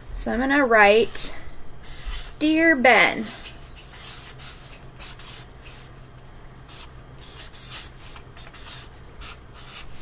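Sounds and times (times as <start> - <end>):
marker pen writing on paper: 3.4 - 5.9, 6.7 - 10.0.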